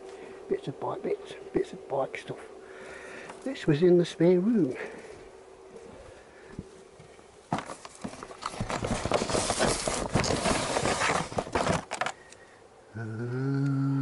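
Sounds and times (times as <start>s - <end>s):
cardboard and plastic packaging rustling: 7.5s - 12.2s.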